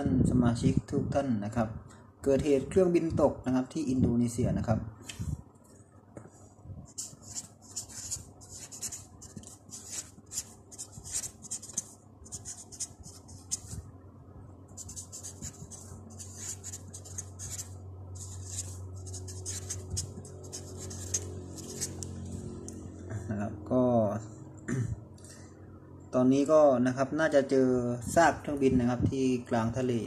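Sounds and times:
felt-tip marker scratching on paper: 6.9s - 13.8s, 14.8s - 22.0s.

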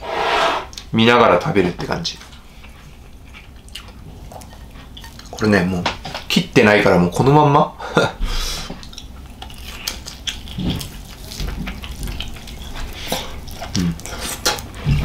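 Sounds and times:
chewing and biting: 2.2s - 5.5s, 8.7s - 15.0s.

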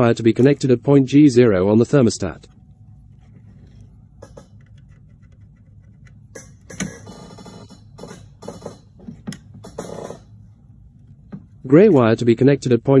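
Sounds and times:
faint low hum: 0.0s - 13.0s
wires and plastic scraping: 2.4s - 10.4s.

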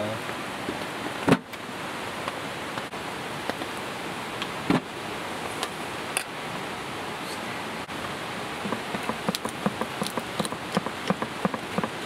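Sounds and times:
sharp knocks: 8.6s - 12.0s.

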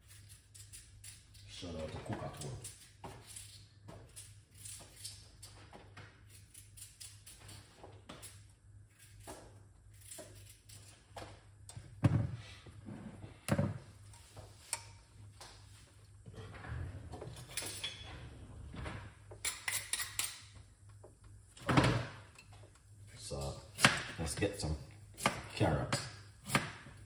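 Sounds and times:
utensils and cookware clattering: 17.2s - 18.4s, 19.4s - 20.6s.

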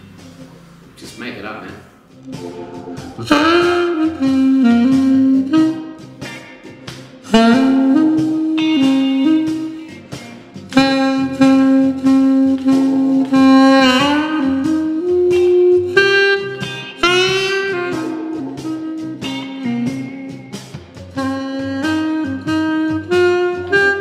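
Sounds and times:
blues backing track: 0.0s - 24.0s
reedy wind instrument blues phrases: 1.6s - 24.0s.

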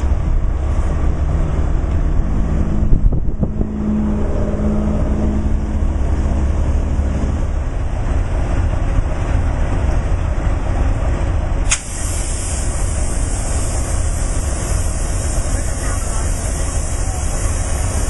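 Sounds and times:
diesel locomotive idling: 0.0s - 18.0s
steady hiss: 11.6s - 18.0s
sharp click: 11.7s - 11.9s.

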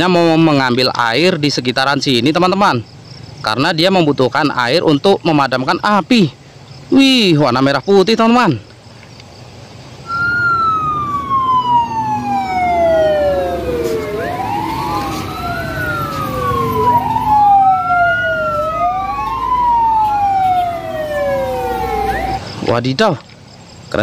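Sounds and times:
truck engines running: 8.7s - 24.0s
fire truck sirens wailing: 10.1s - 22.6s.

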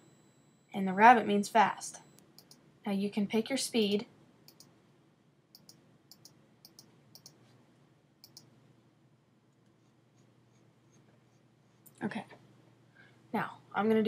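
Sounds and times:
faint computer mouse clicks: 2.2s - 2.6s, 4.5s - 4.7s, 5.5s - 7.4s, 8.2s - 8.5s.

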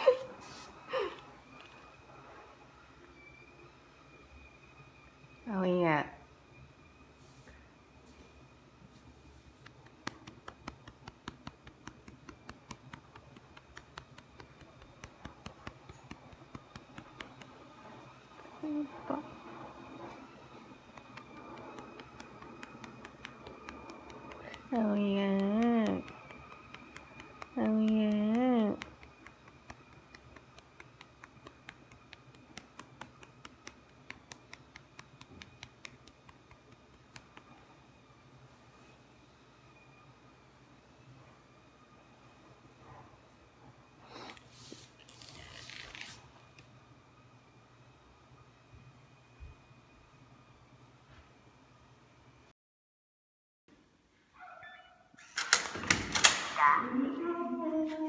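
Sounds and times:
hand patting cat: 9.6s - 17.7s.

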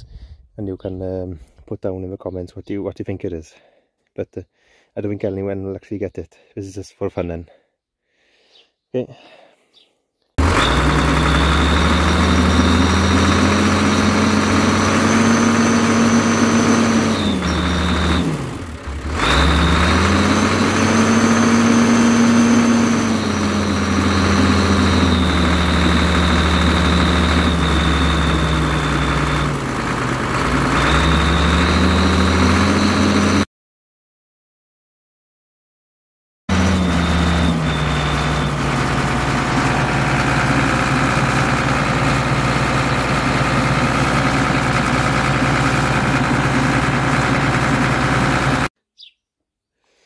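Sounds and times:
tractor engine revving: 10.4s - 33.5s, 36.5s - 48.7s
high whistle from exhaust: 10.6s - 14.4s, 22.6s - 29.6s, 36.5s - 38.6s.

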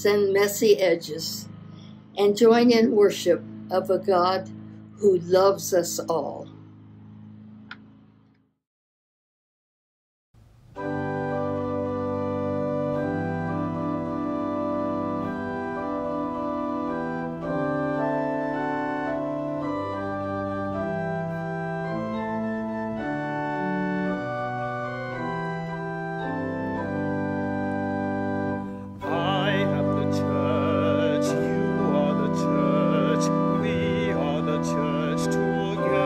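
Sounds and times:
organ playing sustained chords: 0.0s - 8.2s, 10.5s - 36.0s
singing with vibrato: 29.0s - 36.0s.

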